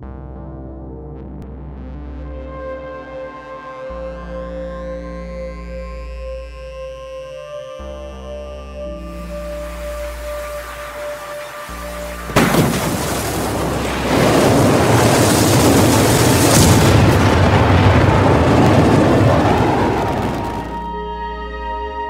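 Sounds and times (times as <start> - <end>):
rocket exhaust roar: 9.3 - 20.9
rocket engines igniting: 9.6 - 20.9.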